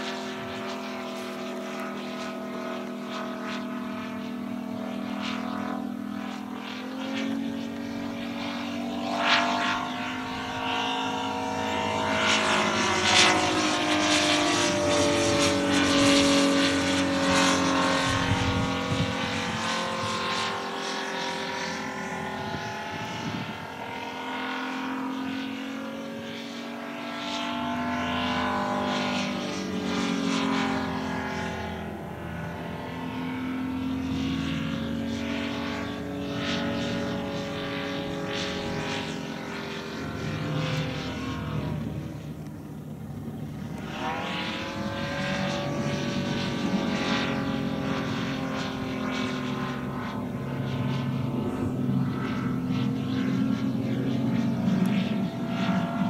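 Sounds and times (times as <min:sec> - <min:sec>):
propeller plane engine: 0:00.0 - 0:56.0.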